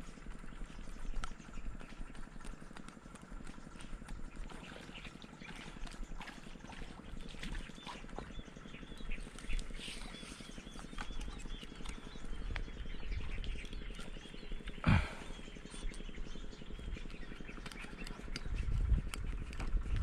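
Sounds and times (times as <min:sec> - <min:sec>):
small chirping calls: 0:00.0 - 0:20.0
light clicking rustles: 0:15.6 - 0:20.0.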